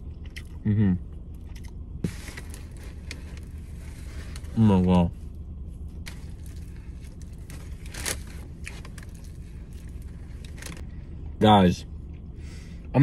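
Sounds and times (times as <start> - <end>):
person chewing: 0.0 - 3.5
low steady hum: 0.0 - 13.0.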